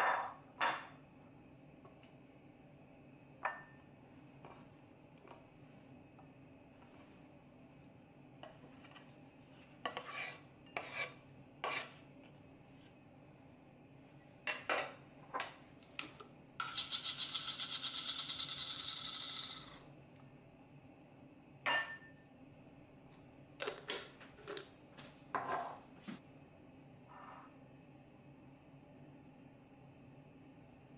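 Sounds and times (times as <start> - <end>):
spice mill grinding: 16.6 - 19.8.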